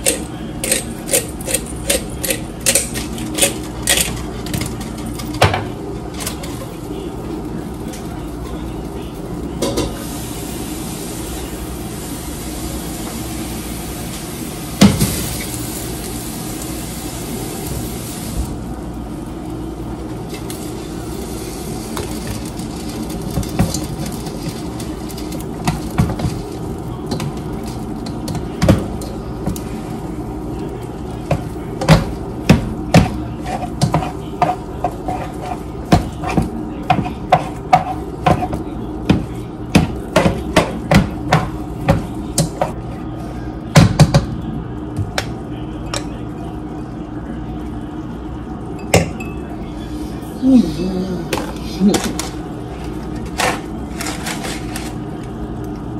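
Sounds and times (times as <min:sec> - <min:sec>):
utensil clacking against metal pot: 0:00.0 - 0:05.5, 0:31.2 - 0:42.8.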